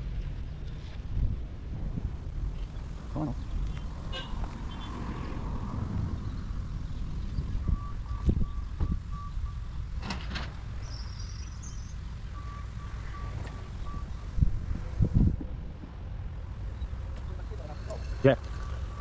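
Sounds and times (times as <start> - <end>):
distant steady beeping: 7.0 - 10.1, 10.7 - 14.4, 16.6 - 19.0.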